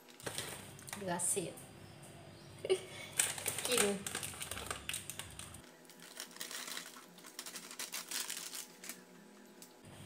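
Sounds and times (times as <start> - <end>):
plastic sachets crinkling: 3.0 - 9.7.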